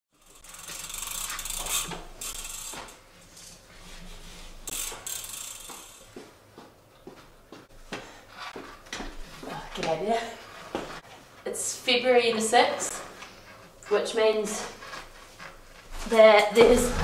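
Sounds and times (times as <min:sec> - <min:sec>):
bike freehub ticking: 0:00.1 - 0:03.0, 0:04.6 - 0:06.2
footsteps on wooden floor: 0:06.1 - 0:11.3, 0:14.8 - 0:17.0.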